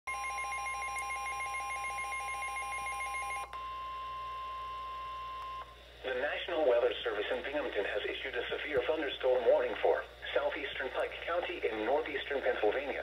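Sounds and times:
rapid beeping alarm: 0:00.1 - 0:03.8
steady alarm tone: 0:00.1 - 0:05.6.

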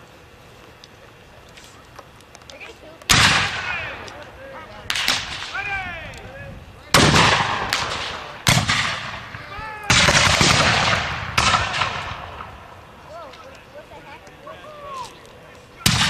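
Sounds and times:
musket shots echoing: 0:03.1 - 0:04.2, 0:04.9 - 0:05.7, 0:06.9 - 0:12.7.

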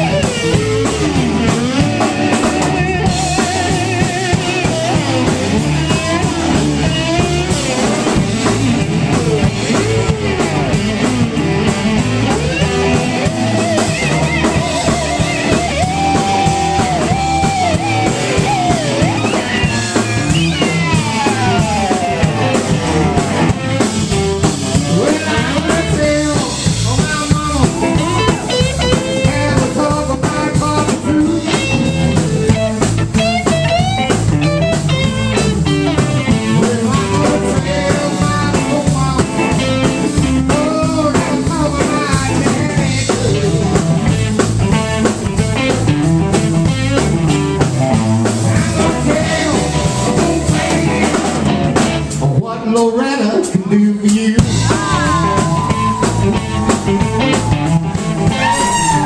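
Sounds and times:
electric guitar lead lines: 0:00.0 - 0:52.5, 0:54.2 - 0:59.0
bass guitar: 0:00.0 - 0:59.0
drums: 0:00.0 - 0:59.0.

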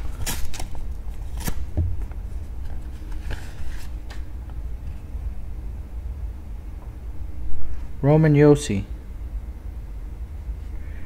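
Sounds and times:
paper envelope rustling: 0:00.0 - 0:04.3.

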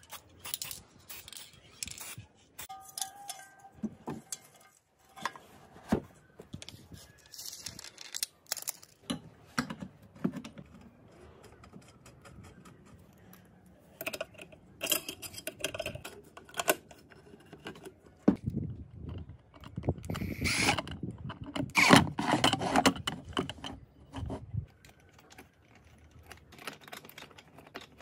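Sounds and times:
metal pot and fittings clinking: 0:02.6 - 0:05.4, 0:14.0 - 0:16.7.

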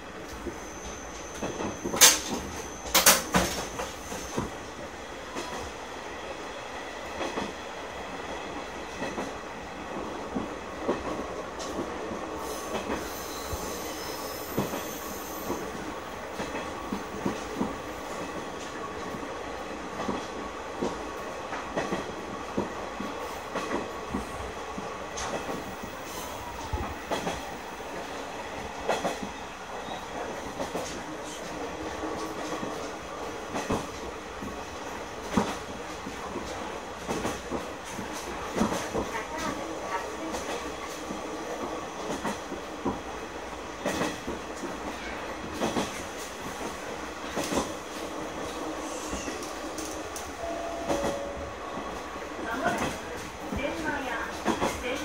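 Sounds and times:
railcar engine drone: 0:00.0 - 0:55.0
high squeal: 0:13.0 - 0:15.6.

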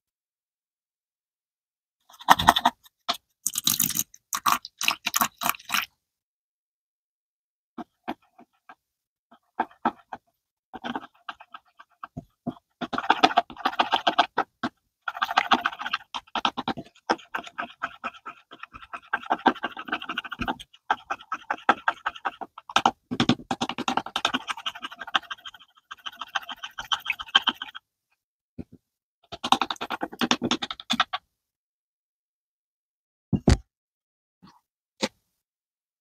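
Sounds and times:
spoon stirring sticky glue: 0:02.1 - 0:05.9, 0:07.8 - 0:27.8, 0:29.3 - 0:31.2.

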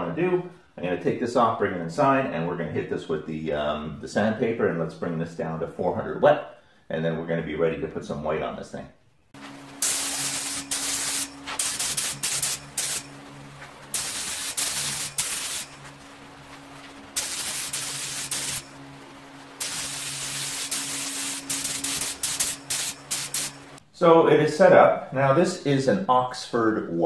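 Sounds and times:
steady low hum: 0:09.2 - 0:25.7
spray gun hissing: 0:09.4 - 0:23.8.

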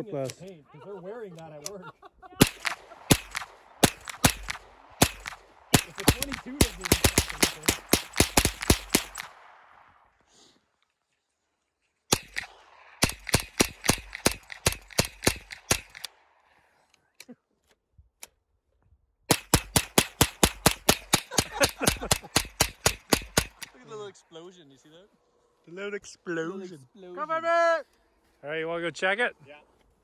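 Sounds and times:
rifle shots in rapid strings: 0:02.4 - 0:09.9, 0:12.1 - 0:16.1, 0:19.3 - 0:23.8.

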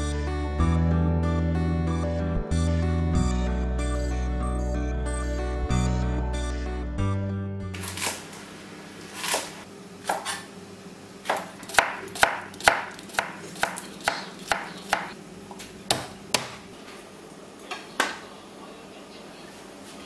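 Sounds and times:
knife chopping on cutting board: 0:11.3 - 0:15.2, 0:15.9 - 0:16.6.

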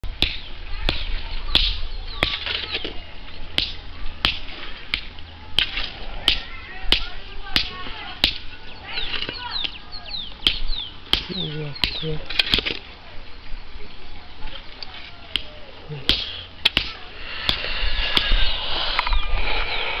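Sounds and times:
low rumble: 0:17.1 - 0:20.0.

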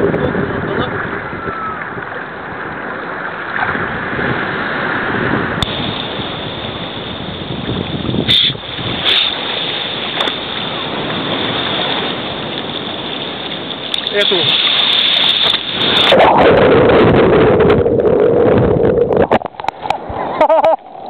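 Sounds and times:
sea waves washing: 0:00.0 - 0:21.0
splashes against camera: 0:13.9 - 0:16.4.

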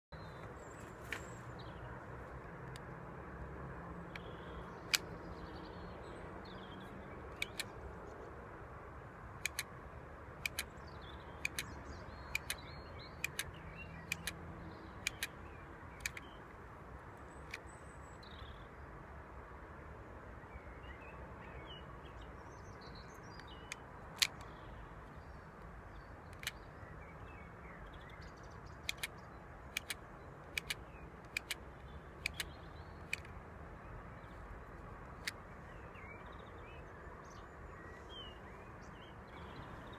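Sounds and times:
steady outdoor hush: 0:00.1 - 0:39.9
toy pistol plastic clicks: 0:07.3 - 0:07.8, 0:09.4 - 0:09.8, 0:10.4 - 0:10.8, 0:11.4 - 0:14.4, 0:15.0 - 0:15.4, 0:16.0 - 0:16.4, 0:23.4 - 0:24.6, 0:26.3 - 0:26.6, 0:28.8 - 0:33.4.

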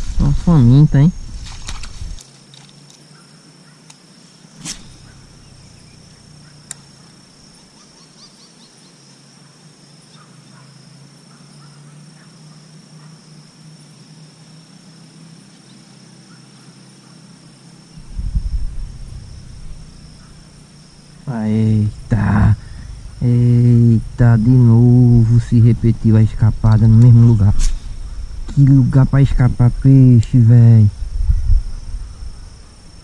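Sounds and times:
insects buzzing: 0:00.0 - 0:33.0
sharp click: 0:04.6 - 0:05.2
loud low rumble: 0:18.0 - 0:32.6.

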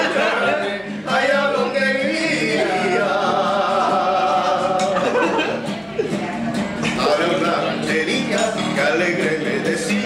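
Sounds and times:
man singing: 0:00.0 - 0:05.4, 0:06.8 - 0:10.0
acoustic guitar chords: 0:00.0 - 0:10.0.

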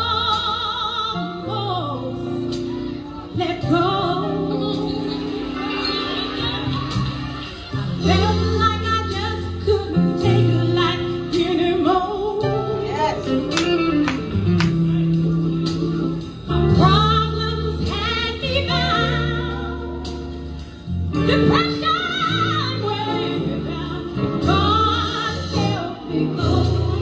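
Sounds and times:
woman singing gospel song: 0:00.0 - 0:06.6, 0:08.0 - 0:14.0, 0:16.5 - 0:20.2, 0:21.2 - 0:27.0.

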